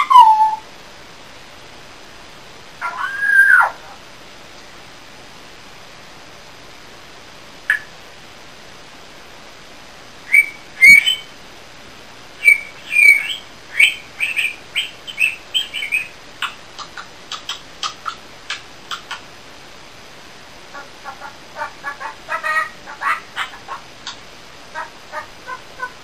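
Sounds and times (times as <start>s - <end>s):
parrot whistled chirps: 0.0s - 0.6s, 2.8s - 3.8s, 10.3s - 11.3s, 12.4s - 19.2s
parrot sharp clicks: 7.7s - 7.9s, 16.4s - 19.2s.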